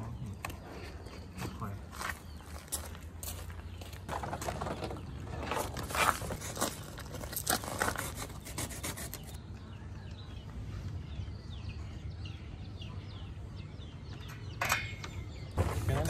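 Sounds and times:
cardboard scraping and rustling: 4.1s - 9.4s.

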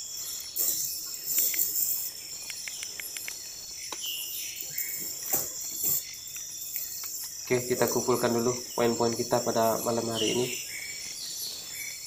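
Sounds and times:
night insects chirping: 0.0s - 12.0s
light clicks: 1.4s - 4.1s.

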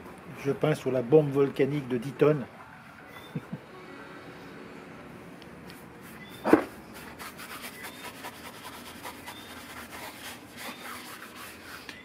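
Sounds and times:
paintbrush scrubbing rough surface: 6.0s - 12.0s.

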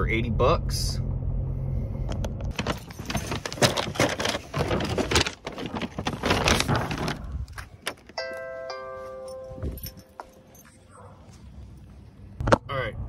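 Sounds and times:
paper bags crinkling: 2.5s - 8.1s
musical tones: 8.2s - 10.6s.

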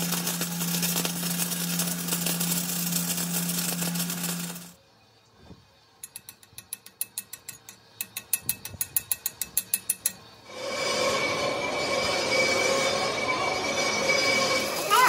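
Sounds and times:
workshop machine humming: 0.0s - 4.8s, 10.0s - 15.0s.

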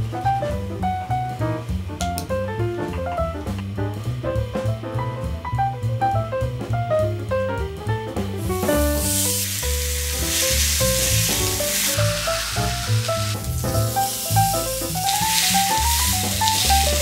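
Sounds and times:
light jazz music: 0.0s - 17.0s
steak sizzling on a grill pan: 8.4s - 17.0s.

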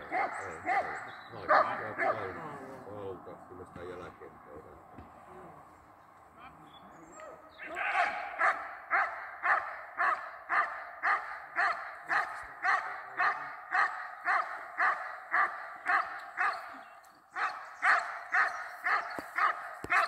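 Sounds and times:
dog barking: 0.0s - 2.4s, 8.2s - 20.0s.

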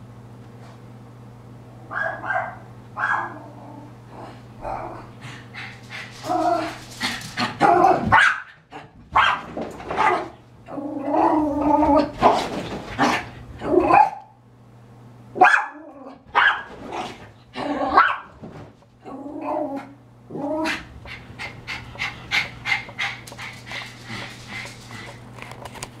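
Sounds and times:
small dog barking: 1.9s - 3.5s, 7.6s - 8.6s, 9.2s - 10.3s, 13.8s - 14.4s, 15.4s - 16.7s, 17.9s - 18.3s
small dog growling: 3.3s - 8.0s, 10.6s - 12.2s, 19.0s - 25.2s.

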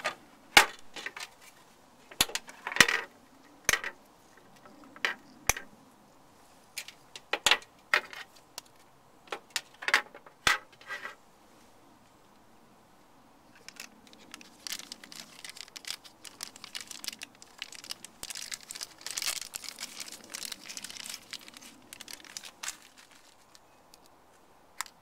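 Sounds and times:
plastic parts clicking and knocking: 3.7s - 4.0s, 6.8s - 10.8s.

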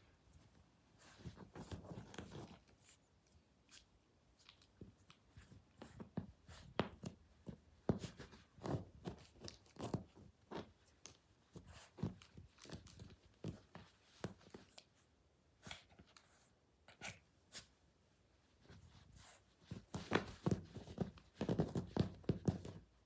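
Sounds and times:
dog rustling in fabric bed: 0.2s - 3.1s, 4.8s - 14.9s, 18.4s - 22.8s.

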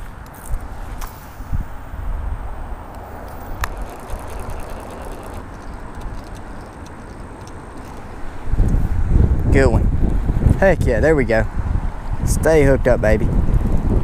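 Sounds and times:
wind buffeting microphone: 0.0s - 14.0s
sharp click: 2.9s - 8.8s.

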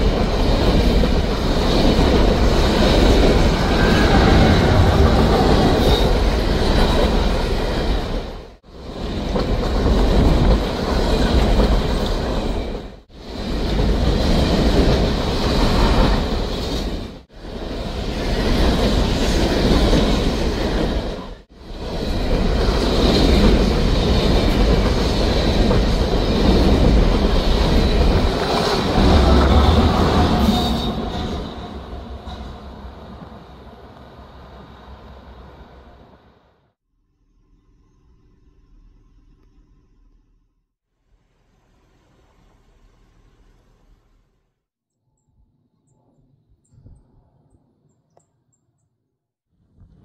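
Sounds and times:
train wheels rumbling and clacking: 0.0s - 36.2s.

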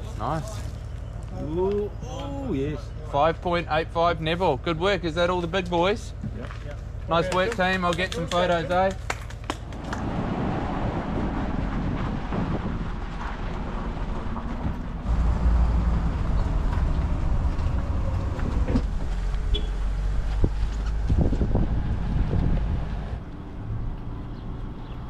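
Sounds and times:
road rumble: 0.0s - 25.0s
wind buffeting microphone: 9.6s - 23.2s
clunks and rattles: 11.0s - 23.2s.

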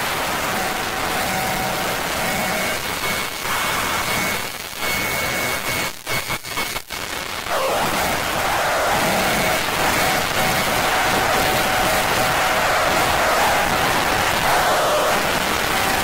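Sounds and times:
electronic noise music hiss: 7.5s - 16.0s.

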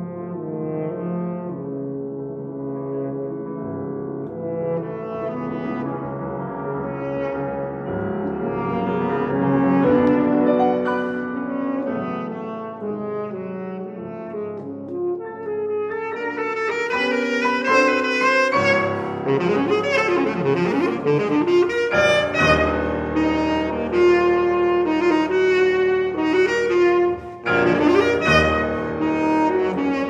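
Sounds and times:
piano chords: 0.0s - 30.0s
saxophone melody: 8.5s - 30.0s.

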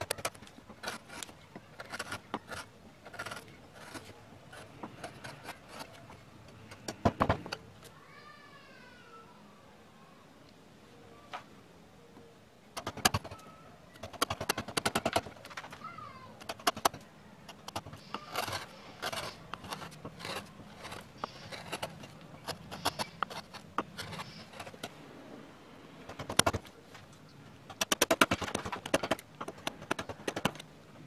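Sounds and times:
quick clicks and scraping cuts: 0.0s - 6.0s, 12.8s - 13.4s, 14.0s - 15.8s, 16.4s - 24.9s, 26.1s - 26.7s, 27.7s - 30.7s
carving gouge cutting wood: 0.0s - 7.4s, 12.8s - 13.4s, 14.0s - 15.8s, 16.4s - 24.9s, 26.1s - 26.7s, 27.7s - 30.6s.

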